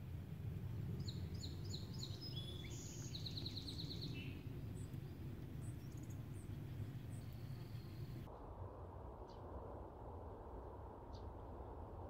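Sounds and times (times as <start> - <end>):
low breeze rumble: 0.0 - 12.0
songbird singing: 0.8 - 8.3.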